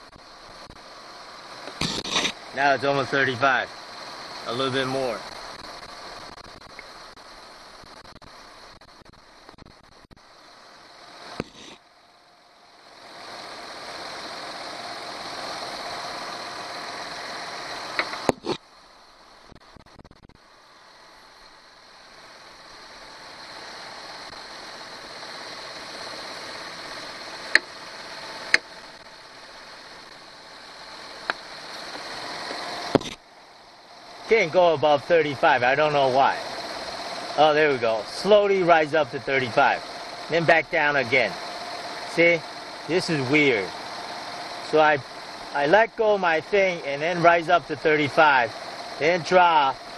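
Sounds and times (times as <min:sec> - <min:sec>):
car engine idling: 0:00.0 - 0:49.9
refrigerant hissing from a can: 0:01.2 - 0:08.7, 0:10.3 - 0:11.9.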